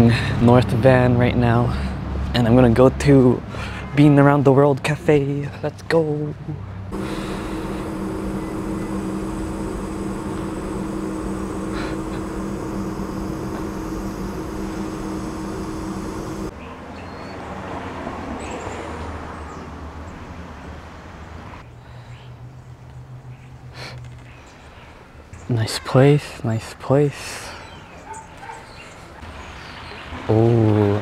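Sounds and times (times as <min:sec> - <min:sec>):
outdoor low hum: 0:06.9 - 0:16.5
steam venting hum and rush: 0:06.9 - 0:16.5.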